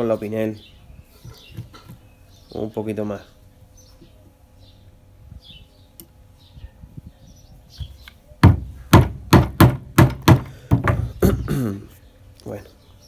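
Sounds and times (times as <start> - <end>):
log knocking on wooden deck: 8.4 - 11.4.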